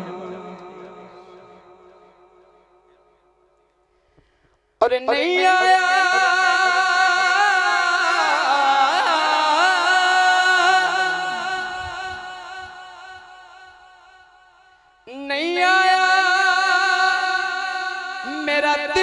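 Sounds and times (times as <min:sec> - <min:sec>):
man singing into a microphone: 0:00.0 - 0:02.0, 0:04.8 - 0:13.8, 0:15.1 - 0:19.0.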